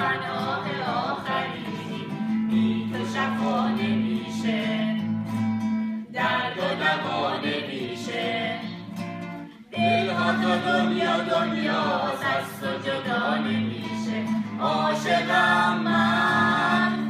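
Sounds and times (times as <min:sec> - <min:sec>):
acoustic guitar strumming: 0:00.0 - 0:17.0
group singing worship song: 0:00.0 - 0:17.0.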